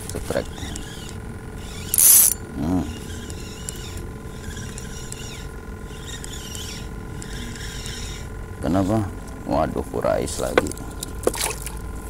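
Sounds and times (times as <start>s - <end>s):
fishing reel ratcheting: 0.8s - 2.4s.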